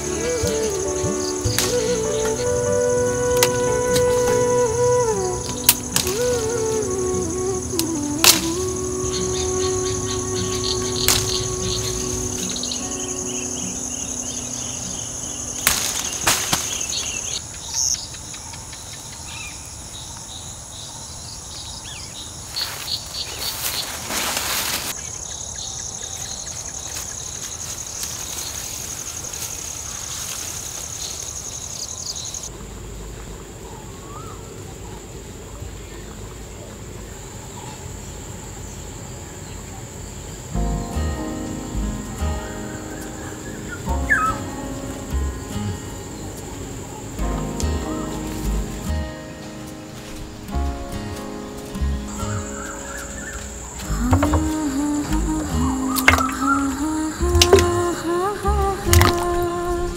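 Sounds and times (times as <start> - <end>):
insect chorus chirring: 0.0 - 59.9
brief rustling: 22.6 - 25.0.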